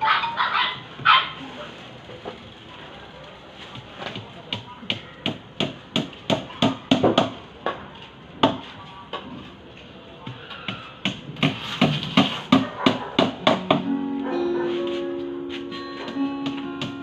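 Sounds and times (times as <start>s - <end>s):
background music: 13.4s - 17.0s.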